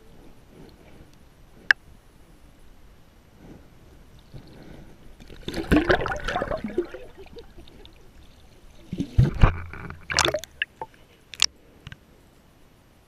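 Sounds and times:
water sloshing and gurgling: 3.9s - 11.5s
water splashing: 4.1s - 11.5s.

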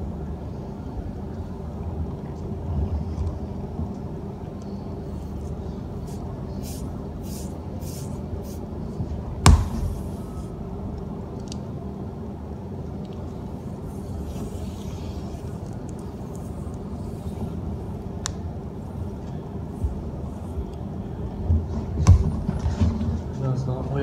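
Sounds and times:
low rumble of handling noise: 0.0s - 24.0s
sharp knock: 9.4s - 10.0s.

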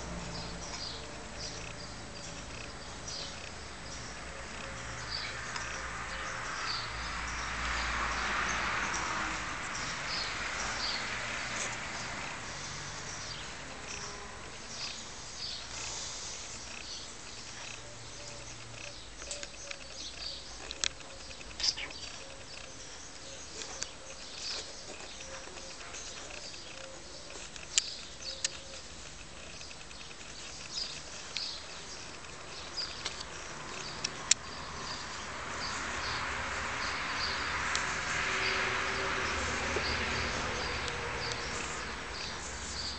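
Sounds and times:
small birds chirping: 0.0s - 42.9s
sharp clicks: 0.6s - 5.8s, 16.5s - 22.8s, 23.5s - 34.5s
steady hiss: 14.3s - 17.8s.

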